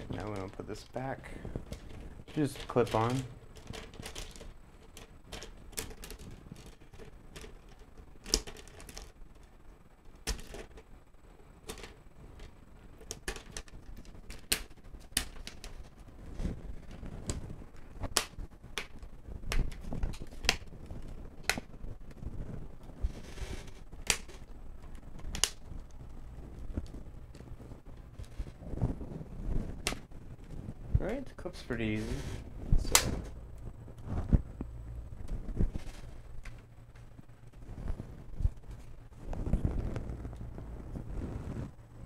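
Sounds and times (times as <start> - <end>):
plastic clips clicking into place: 32.8 - 33.2.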